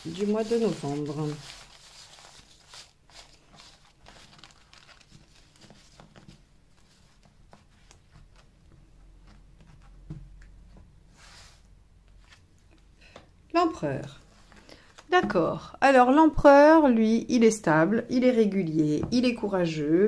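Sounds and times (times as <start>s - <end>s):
cards sliding on cloth: 11.1s - 12.4s.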